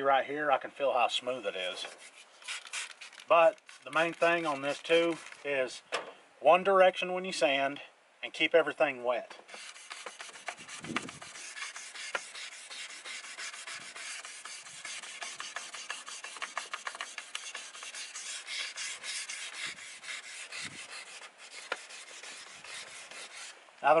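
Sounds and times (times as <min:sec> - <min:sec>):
wet sandpaper scrubbing plastic: 0:01.8 - 0:05.6, 0:09.5 - 0:23.6.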